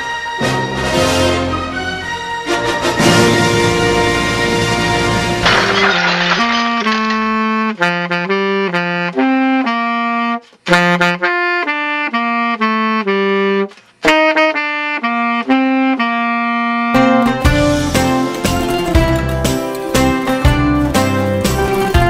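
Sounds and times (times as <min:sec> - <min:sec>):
saxophone melody: 0:07.6 - 0:17.8.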